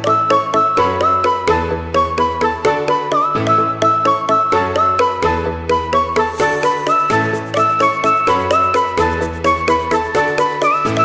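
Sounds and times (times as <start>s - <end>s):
background music with steady beat: 0.0s - 11.0s
bell-like melody: 0.0s - 11.0s.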